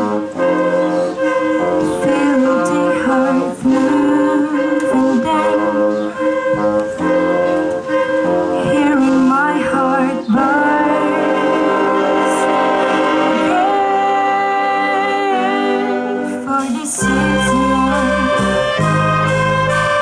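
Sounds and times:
steady beat: 0:00.0 - 0:11.1
low bass notes: 0:00.0 - 0:20.0
wind band playing sustained chords: 0:00.0 - 0:20.0
girl singing into a microphone: 0:01.8 - 0:06.7, 0:08.3 - 0:11.9, 0:13.6 - 0:18.5.

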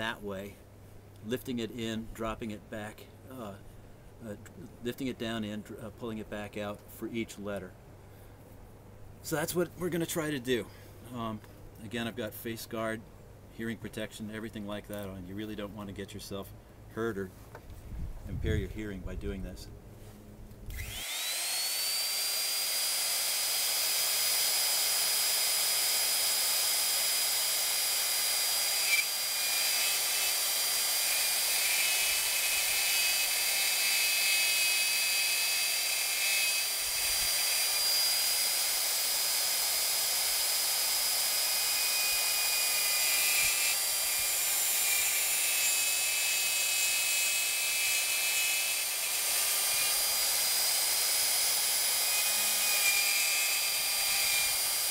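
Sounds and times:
electric router whining: 0:20.7 - 0:54.9.

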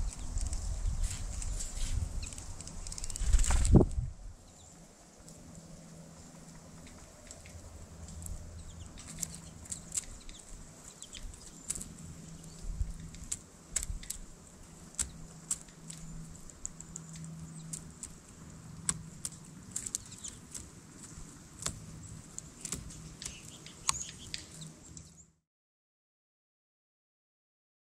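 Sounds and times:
bird bill tapping on seed: 0:07.2 - 0:25.1.

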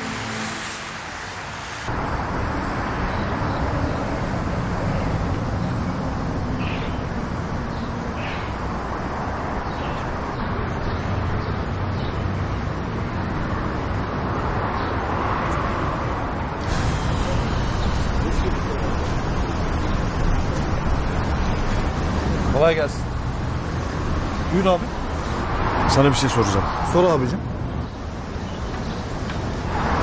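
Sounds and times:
street traffic: 0:00.0 - 0:30.0.

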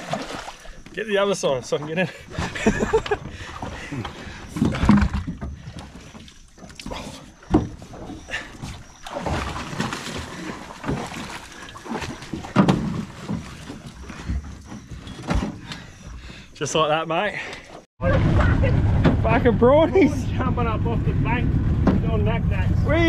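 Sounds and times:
splashing in shallow water: 0:00.0 - 0:15.2.

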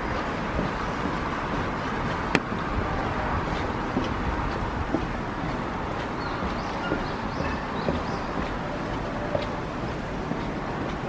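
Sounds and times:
footsteps on wet boardwalk: 0:00.0 - 0:11.0
steady rushing noise: 0:00.0 - 0:11.0.

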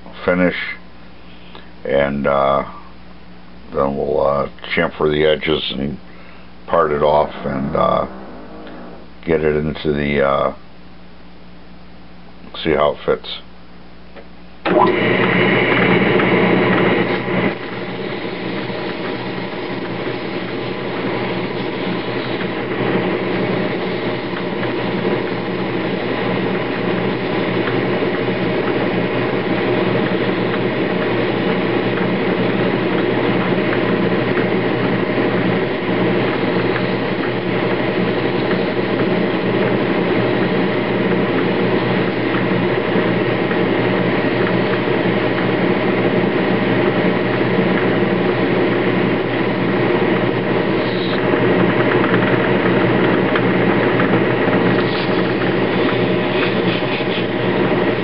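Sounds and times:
metal lathe whining drone: 0:06.8 - 0:09.3, 0:14.7 - 0:58.0.

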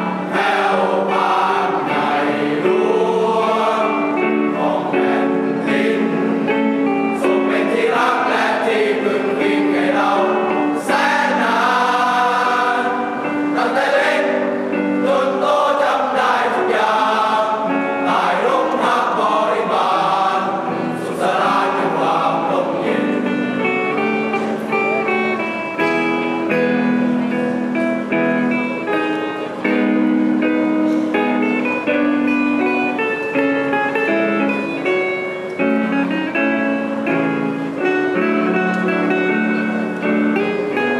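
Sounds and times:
choir singing: 0:00.0 - 0:25.1
plucked guitar: 0:00.0 - 0:40.9.

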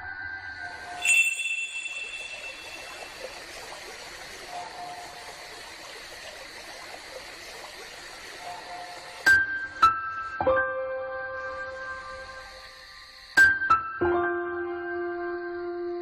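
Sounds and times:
steady water hiss: 0:00.7 - 0:10.4, 0:11.4 - 0:13.5.

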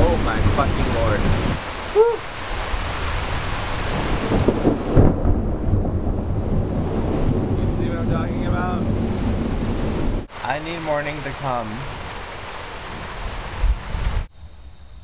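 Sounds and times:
heavy rain: 0:00.0 - 0:14.3
thunder rumbling: 0:00.0 - 0:14.3.

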